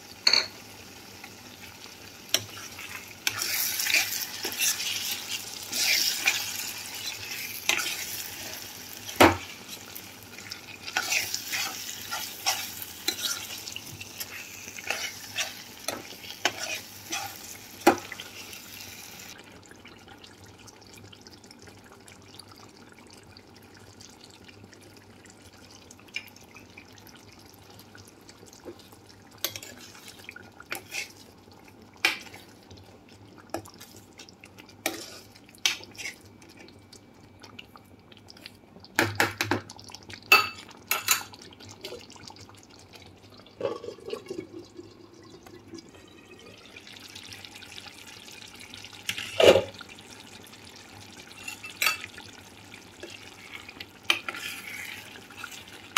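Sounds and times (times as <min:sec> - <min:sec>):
curry bubbling in a pan: 0:00.7 - 0:55.9.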